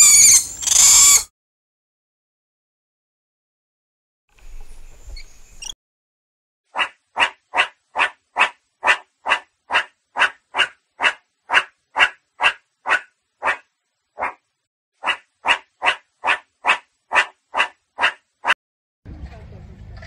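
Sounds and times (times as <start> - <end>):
meerkat alarm barks: 6.7 - 14.4, 15.0 - 18.6.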